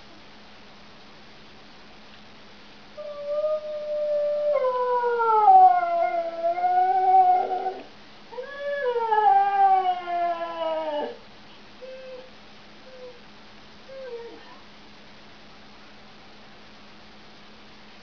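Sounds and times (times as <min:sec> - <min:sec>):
dog howling: 0:03.0 - 0:11.2.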